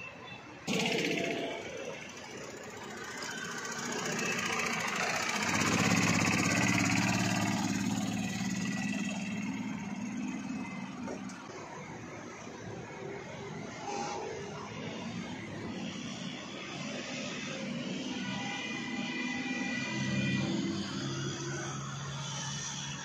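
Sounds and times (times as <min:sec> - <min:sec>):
go-kart engine passing by: 0:00.7 - 0:11.5.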